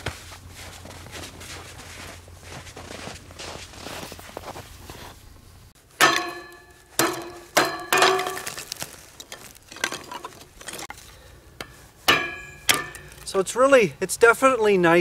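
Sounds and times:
hatchet chopping on metal grate: 6.0 - 8.6, 11.6 - 13.3.

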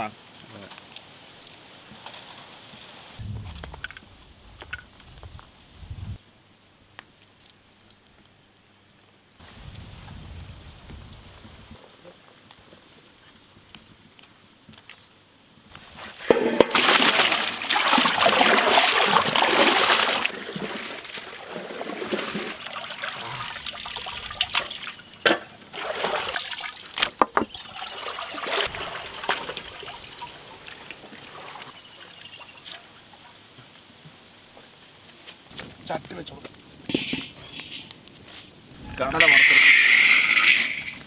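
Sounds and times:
water sloshing and splashing: 15.8 - 33.4
rushing water: 15.9 - 33.6.

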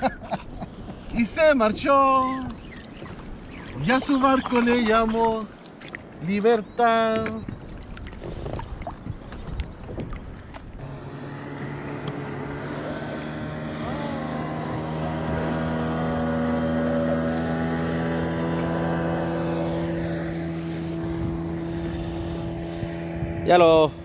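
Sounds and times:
boat motor droning: 0.0 - 24.0.

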